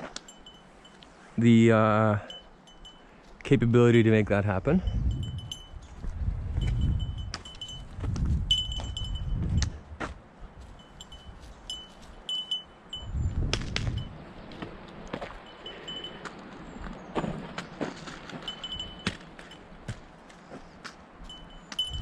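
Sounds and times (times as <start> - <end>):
small bell jingling: 4.8 - 6.0, 6.6 - 9.4, 10.7 - 13.2, 14.9 - 16.2, 18.4 - 19.7, 21.3 - 22.0.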